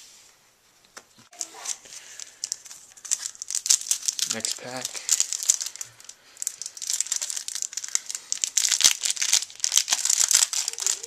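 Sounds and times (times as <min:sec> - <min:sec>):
foil wrapper crinkling and tearing: 0:01.3 - 0:11.0.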